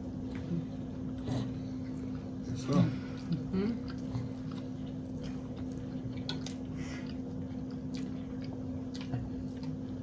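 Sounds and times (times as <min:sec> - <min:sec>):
people chewing food: 0:00.0 - 0:10.0.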